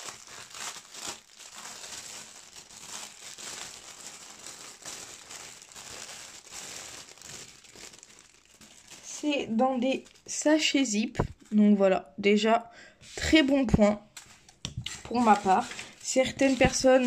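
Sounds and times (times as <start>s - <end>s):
plastic packaging crinkling: 0.0s - 10.4s, 14.1s - 17.0s.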